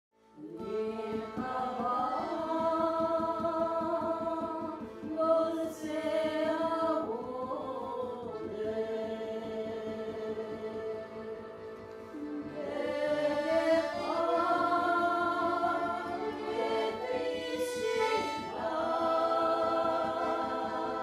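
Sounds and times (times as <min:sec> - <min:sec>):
music with singing voice: 0:00.2 - 0:21.0.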